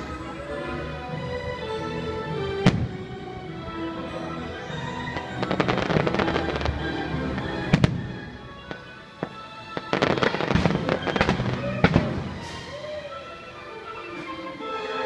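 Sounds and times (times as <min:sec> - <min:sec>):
fireworks bursting: 0:02.6 - 0:03.1, 0:05.1 - 0:12.8
dense firework crackling: 0:05.4 - 0:06.8, 0:09.2 - 0:12.6
sharp firework bangs: 0:09.9 - 0:12.6.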